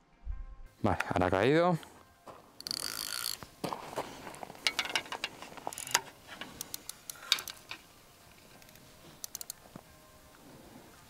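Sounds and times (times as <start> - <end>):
fishing reel clicking: 2.6 - 3.4, 5.7 - 6.0, 6.6 - 7.6, 8.6 - 9.6.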